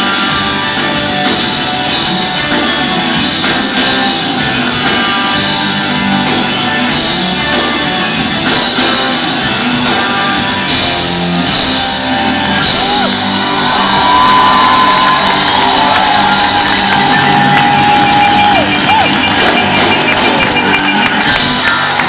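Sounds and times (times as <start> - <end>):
live rock band: 0.0 - 22.0.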